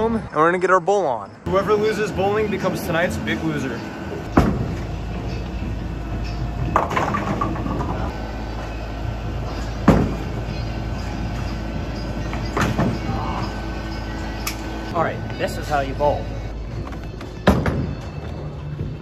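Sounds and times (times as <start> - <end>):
bowling balls rolling: 4.0 - 13.8
bowling pins crashing: 6.7 - 8.1.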